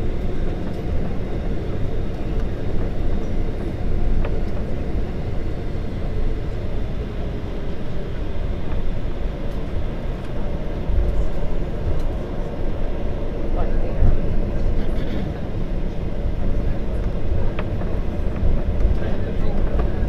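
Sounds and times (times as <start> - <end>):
jet engines idling hum: 0.0 - 20.0.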